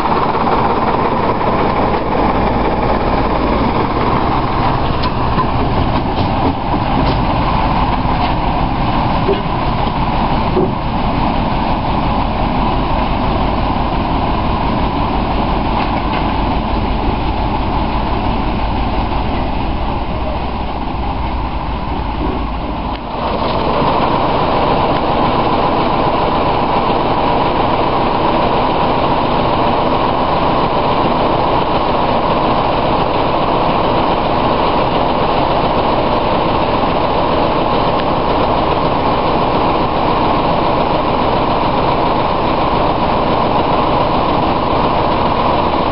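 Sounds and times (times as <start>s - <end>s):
diesel locomotive engine rumbling: 0.0s - 45.9s.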